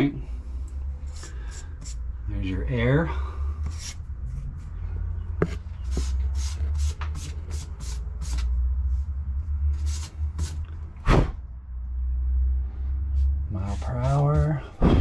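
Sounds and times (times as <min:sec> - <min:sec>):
steady low rumble: 0:00.0 - 0:15.0
hand brushing glass: 0:01.0 - 0:02.0, 0:13.1 - 0:14.6.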